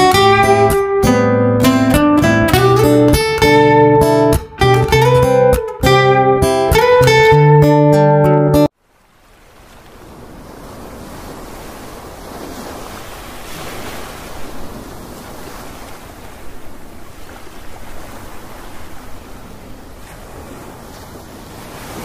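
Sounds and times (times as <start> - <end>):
small waves washing on sand: 8.7 - 22.0.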